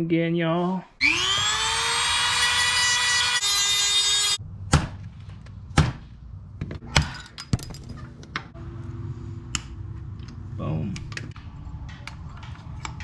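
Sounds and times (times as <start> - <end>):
rotary tool grinding whine: 1.0 - 4.4.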